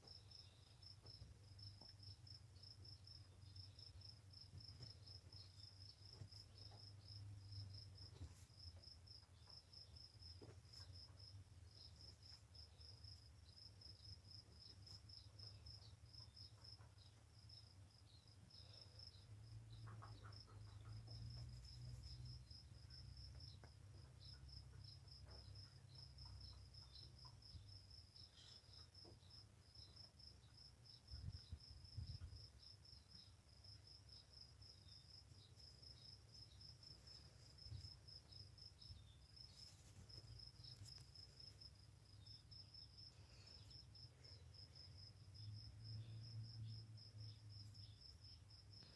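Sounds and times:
cricket chirping: 0.0 - 48.9.

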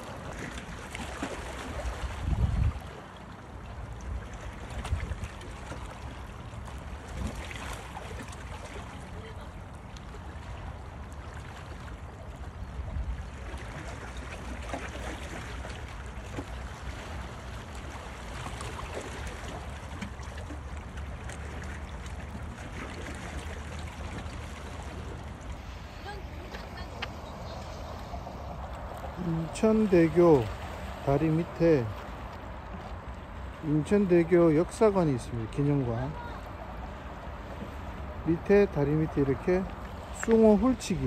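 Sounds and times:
wind buffeting microphone: 1.9 - 3.0
sea water washing against rocks: 13.6 - 41.0.

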